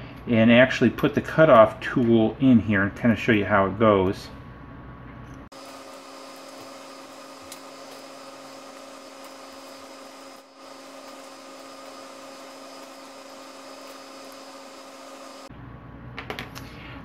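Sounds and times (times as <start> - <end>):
steady hum with hiss: 0.0 - 17.0.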